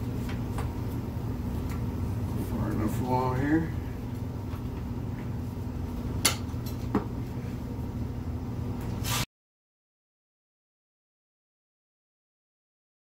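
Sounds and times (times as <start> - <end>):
steady low hum: 0.0 - 9.1.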